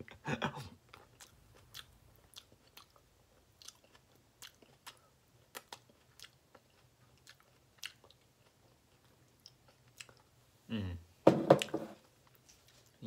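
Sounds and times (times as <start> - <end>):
chewing mouth sounds: 0.8 - 10.3.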